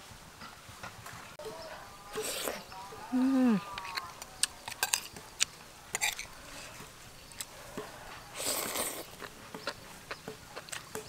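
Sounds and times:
slurp: 2.1s - 2.7s, 8.3s - 9.3s
chewing clicks and smacks: 8.7s - 11.0s.

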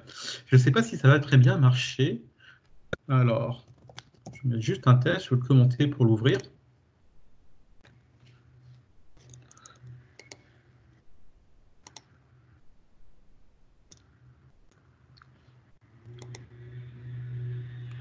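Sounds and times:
computer mouse clicks: 3.7s - 4.4s, 9.2s - 10.6s, 11.8s - 12.2s, 13.9s - 15.3s, 16.0s - 16.5s
faint low hum: 4.3s - 18.0s.

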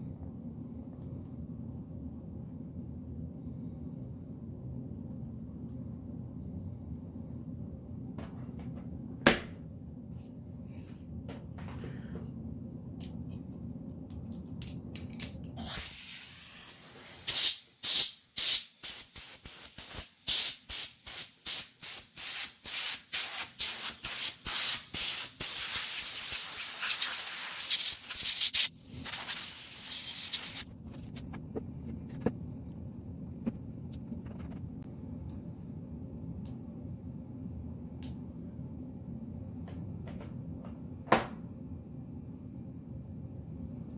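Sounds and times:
compressed air blast: 15.6s - 31.1s
compressed air hissing puffs: 21.5s - 31.2s.

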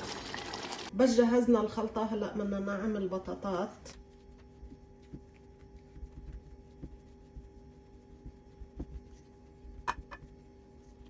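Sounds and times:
faint steady hum: 0.9s - 11.0s
spatula mashing potatoes in bowl: 3.9s - 11.0s.

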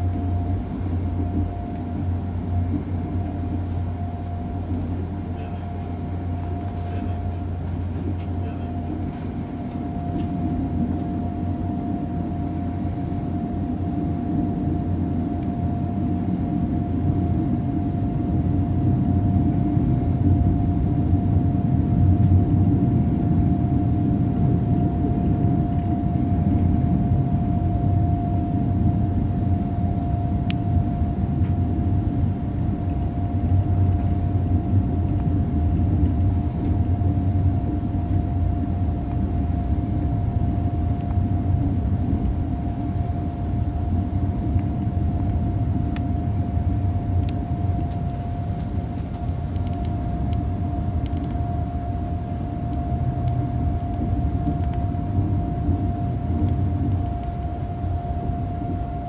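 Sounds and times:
train wheels rumbling on rail: 0.0s - 29.5s
high-pitched train hum: 0.0s - 59.0s.

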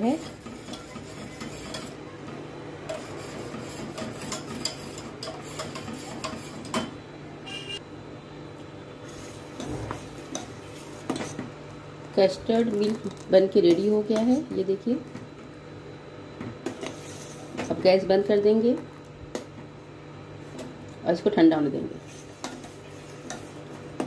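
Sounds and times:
whisk scraping a saucepan: 0.0s - 2.0s, 2.9s - 6.8s, 16.8s - 17.5s, 22.0s - 23.7s.

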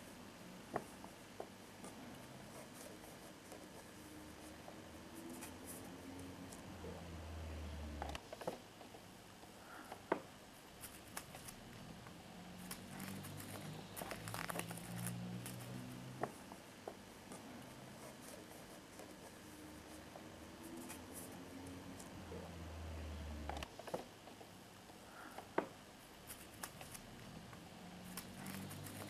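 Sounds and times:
paper crinkling: 12.6s - 15.8s, 28.1s - 29.0s.

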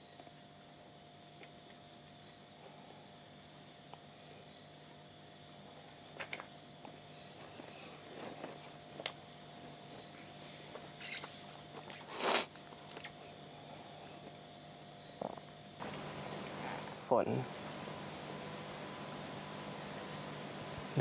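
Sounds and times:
crickets chirping: 0.0s - 21.0s.

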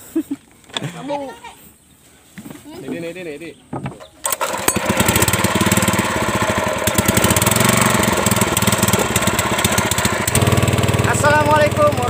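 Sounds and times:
small petrol engine running: 4.2s - 12.0s.

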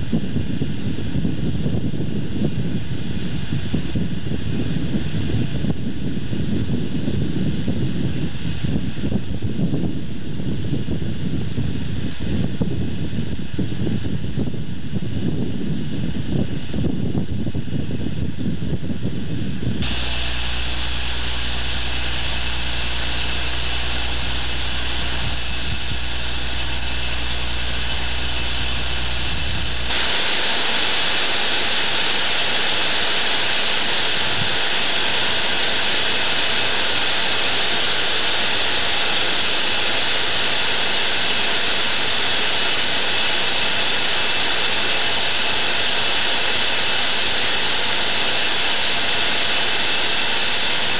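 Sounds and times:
wind buffeting microphone: 0.0s - 31.0s
low hum: 0.0s - 50.9s
ship machinery whine and rush: 0.0s - 50.9s.

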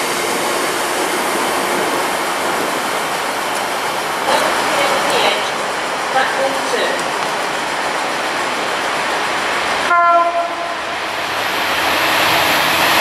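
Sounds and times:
train rushing noise: 0.0s - 13.0s
diesel locomotive horn blast: 9.9s - 11.0s.

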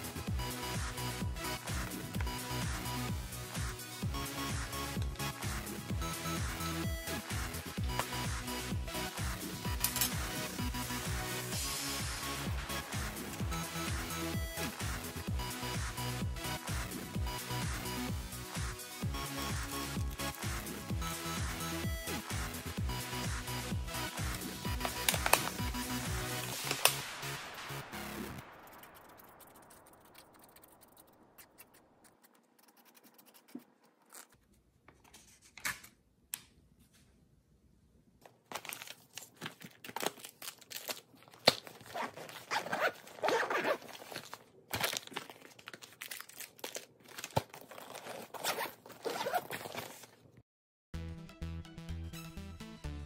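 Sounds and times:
zipper zipping: 41.8s - 44.4s, 47.7s - 50.1s.

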